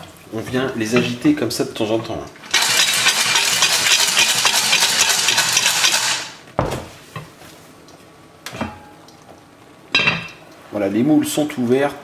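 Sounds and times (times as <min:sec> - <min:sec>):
mussels rattling in a shaken pot: 0:02.4 - 0:06.4.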